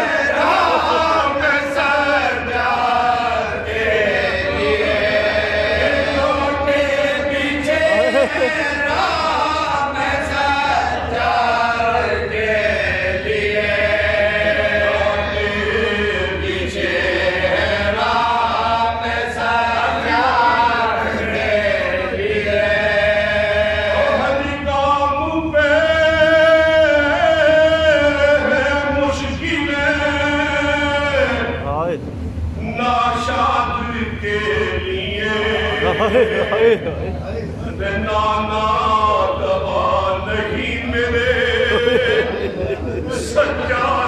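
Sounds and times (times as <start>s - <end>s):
men chanting: 0.0s - 31.6s, 32.6s - 44.0s.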